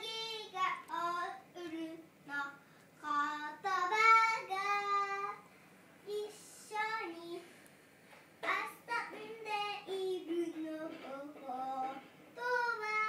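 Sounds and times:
girl singing held notes: 8.4s - 13.0s.

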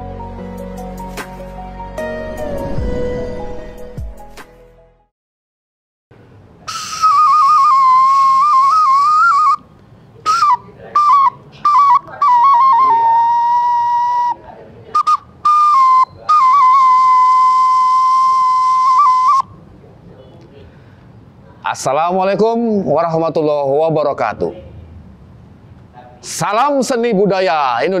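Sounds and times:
flute-like wind instrument melody: 2.0s - 4.3s, 6.7s - 19.6s.

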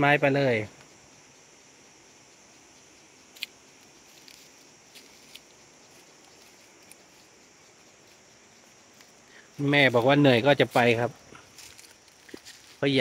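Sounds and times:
faint high insect drone: 0.0s - 13.0s
footsteps on dry leaves: 9.6s - 13.0s.

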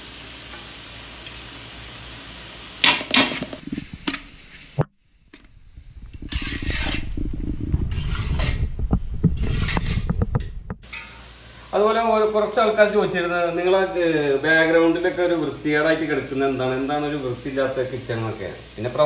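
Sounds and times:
onions sizzling in a pot: 0.0s - 19.0s
spoon scraping a pot: 6.2s - 7.2s, 7.8s - 8.7s, 9.4s - 11.2s.

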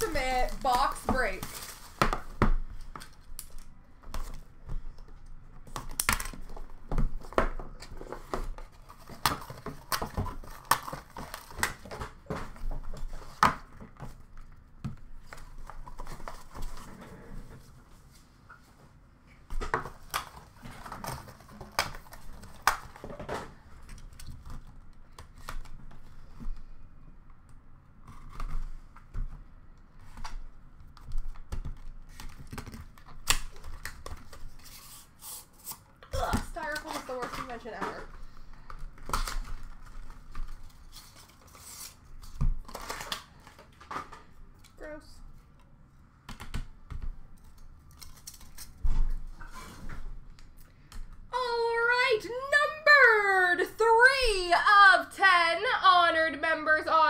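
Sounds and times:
plastic shrink wrap crinkling: 0.0s - 2.0s.

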